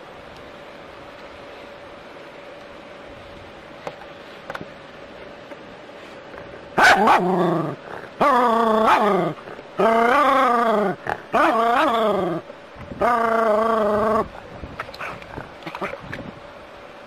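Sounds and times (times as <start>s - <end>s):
small dog yelping barks: 6.8s - 7.4s, 8.8s - 9.4s.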